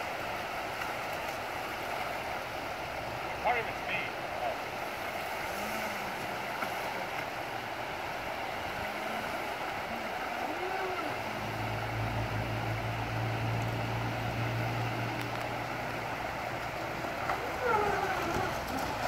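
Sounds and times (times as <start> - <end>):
river rapids rushing: 0.0 - 19.0
toy boat motor whine: 5.4 - 14.9, 17.1 - 19.0.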